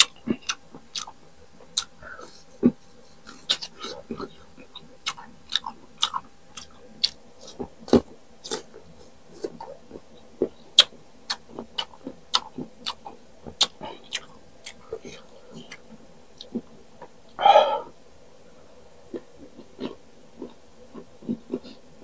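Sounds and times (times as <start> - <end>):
crunching crisp fruit: 3.2 - 14.8.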